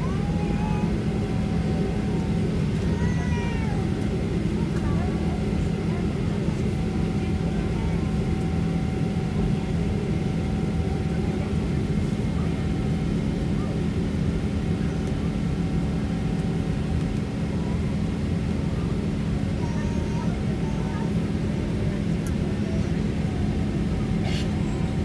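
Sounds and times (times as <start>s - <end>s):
jet engines droning: 0.0s - 25.0s.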